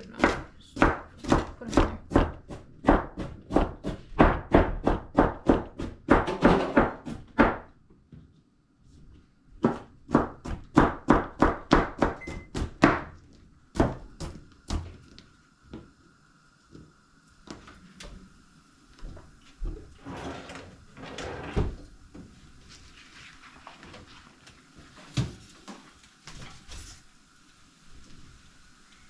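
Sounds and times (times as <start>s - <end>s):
knife chopping on cutting board: 0.2s - 7.7s, 9.6s - 14.8s.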